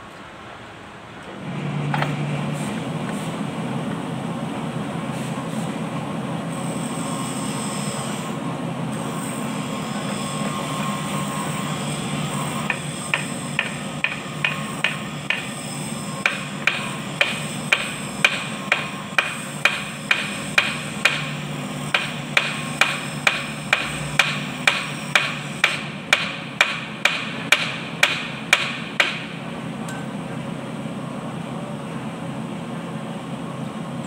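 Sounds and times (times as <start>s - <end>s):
hammer clanking on metal: 22.0s - 30.1s.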